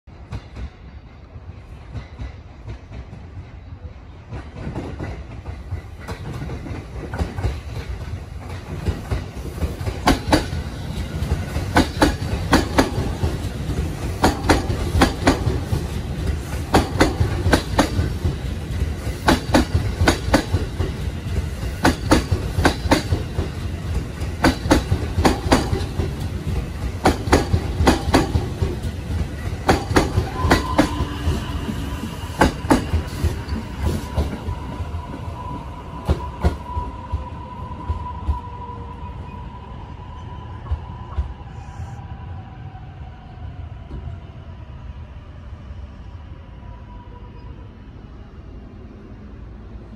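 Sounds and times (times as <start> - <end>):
electric train rumbling: 0.0 - 49.9
train wheels clacking over rail joints: 4.3 - 31.2.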